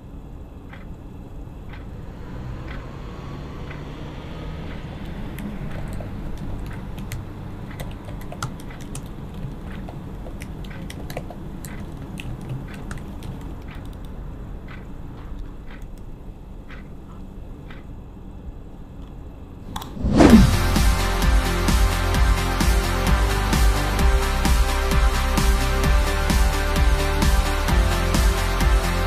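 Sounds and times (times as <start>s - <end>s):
slow ticks: 0.0s - 18.0s
laptop keyboard typing: 4.6s - 16.1s.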